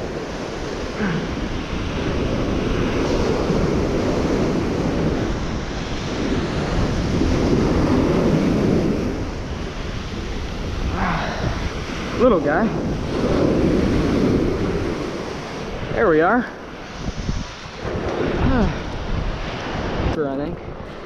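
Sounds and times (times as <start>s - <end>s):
ocean surf on beach: 0.0s - 21.0s
wind rumbling on microphone: 0.0s - 21.0s.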